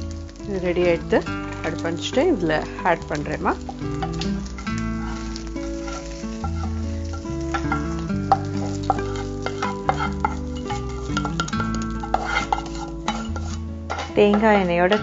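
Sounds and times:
background music with held notes: 0.0 - 15.0
oil sizzling: 0.0 - 15.0
wooden spatula tapping pan: 5.1 - 15.0.

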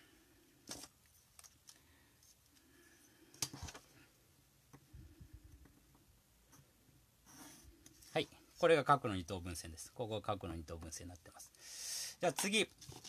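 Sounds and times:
pencil drawing on paper: 7.2 - 7.8.

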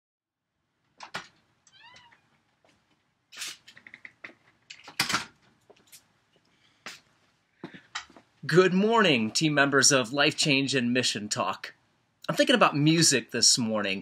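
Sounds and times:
door hinges squeaking: 1.1 - 2.3.

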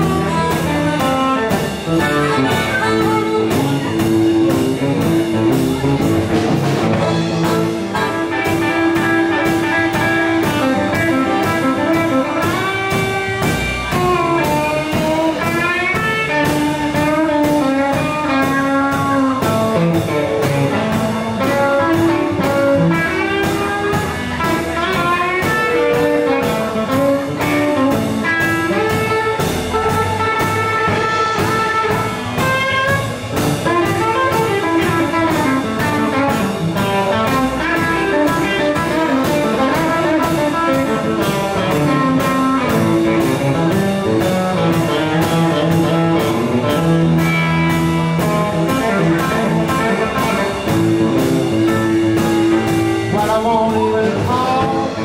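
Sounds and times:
electric guitar: 0.0 - 55.0
live band playing: 0.0 - 55.0.

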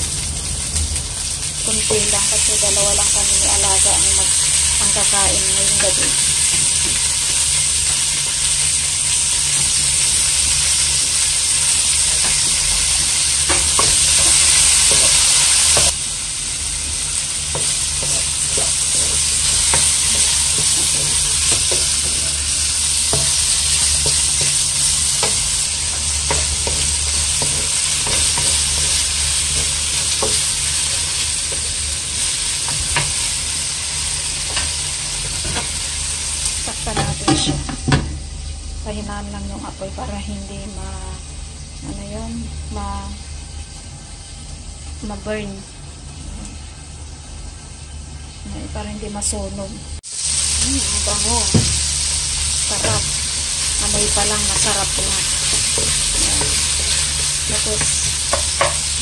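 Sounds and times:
food sizzling in oil: 0.0 - 59.0
stirring taps and scrapes: 23.1 - 30.5, 57.8 - 58.8.

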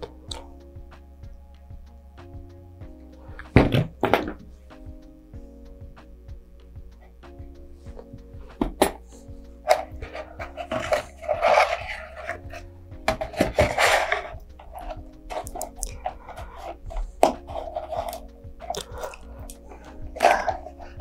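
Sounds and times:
soft background music: 0.0 - 21.0
cardboard rustling and scraping: 9.7 - 18.3.

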